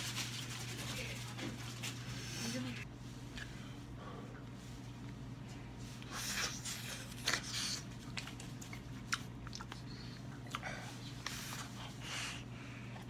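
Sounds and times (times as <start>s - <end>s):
low steady hum: 0.0s - 13.0s
chewing with wet mouth clicks: 7.2s - 11.4s.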